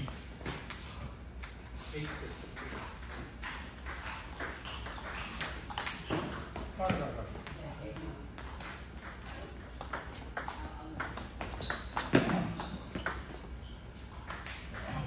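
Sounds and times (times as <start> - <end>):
brief high squeak: 11.5 - 12.8.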